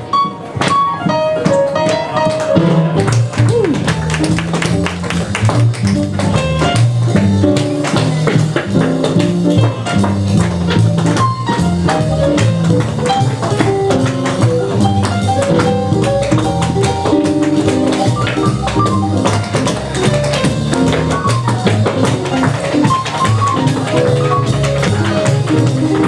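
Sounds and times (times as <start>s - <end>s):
piano tune: 0.0s - 26.0s
tap shoes on wooden stage: 0.2s - 26.0s.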